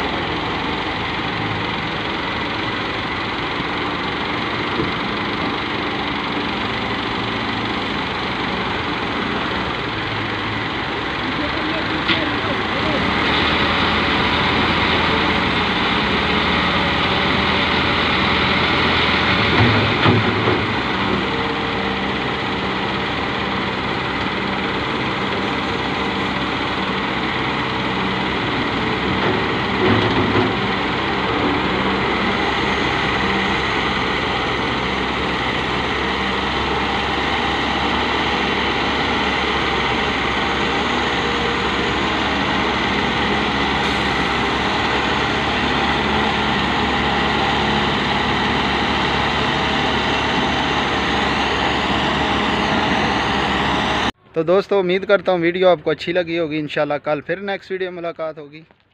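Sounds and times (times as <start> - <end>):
diesel engines running: 0.0 - 58.9
soil loading into trailer: 11.5 - 54.1.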